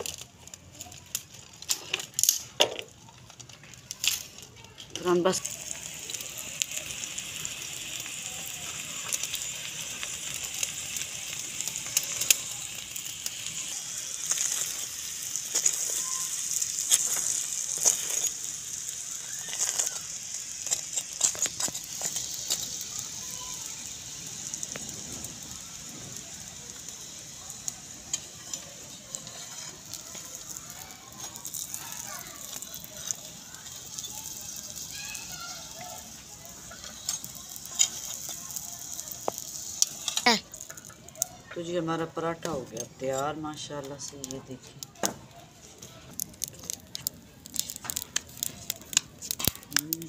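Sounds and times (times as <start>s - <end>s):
bread sizzling in pan: 0.0s - 50.0s
spatula clicking and scraping: 11.6s - 23.2s, 28.1s - 41.5s, 42.4s - 49.8s.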